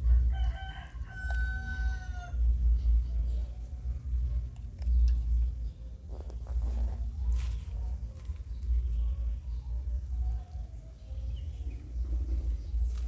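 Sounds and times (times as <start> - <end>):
rooster crowing: 0.0 - 2.4
low rumble: 0.0 - 13.0.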